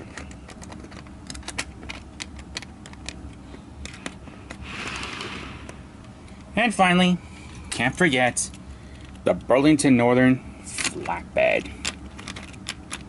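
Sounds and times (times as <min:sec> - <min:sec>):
short rustling scrape: 0:04.6 - 0:05.8.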